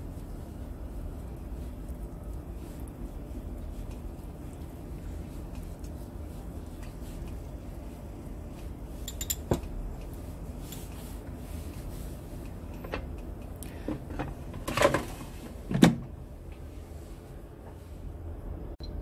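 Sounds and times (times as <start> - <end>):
air fryer basket knocks and clatters: 13.8 - 16.2.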